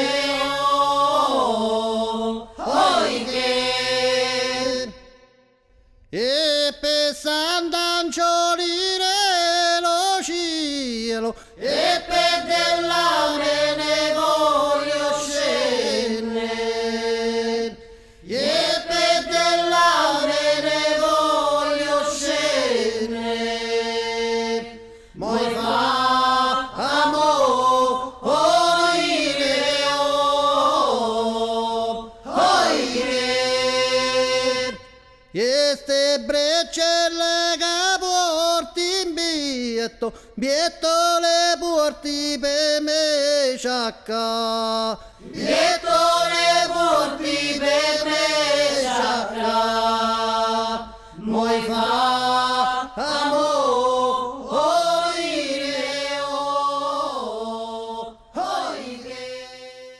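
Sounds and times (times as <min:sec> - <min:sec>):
singer breathing: 0:11.3 - 0:11.6, 0:17.8 - 0:18.3, 0:24.8 - 0:25.2, 0:40.1 - 0:40.4, 0:45.0 - 0:45.2, 0:50.9 - 0:51.2.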